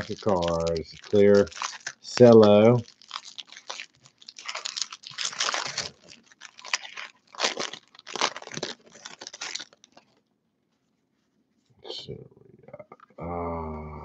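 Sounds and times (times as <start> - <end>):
cellophane wrapper crinkling and tearing: 0.0 - 10.2.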